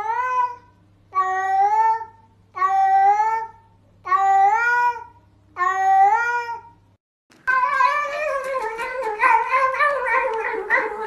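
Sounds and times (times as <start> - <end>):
cat yowling: 7.5 - 11.0.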